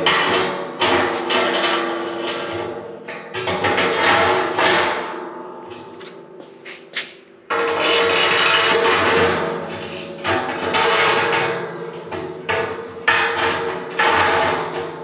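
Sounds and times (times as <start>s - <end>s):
steel rods clanking against drum: 0.0s - 5.2s
metal drum ringing: 0.0s - 5.9s.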